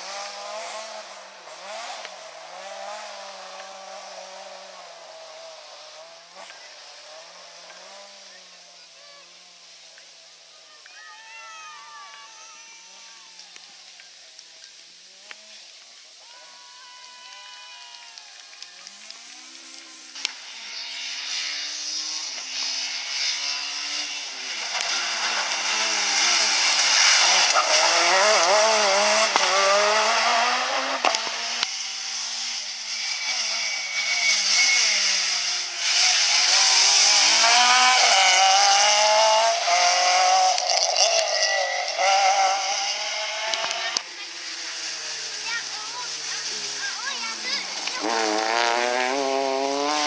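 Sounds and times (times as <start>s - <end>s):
rally car engines revving: 0.0s - 50.0s.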